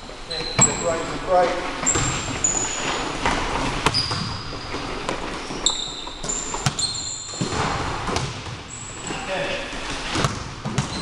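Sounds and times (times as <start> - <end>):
sneakers squeaking on wooden floor: 0.2 - 11.0
basketball bouncing: 1.8 - 2.6, 3.2 - 8.8, 10.1 - 11.0.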